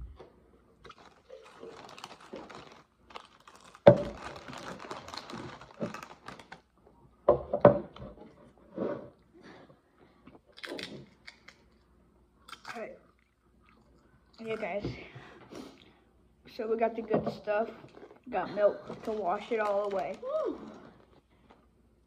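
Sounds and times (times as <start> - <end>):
packaging crinkling: 0.8 - 6.7, 18.8 - 21.2.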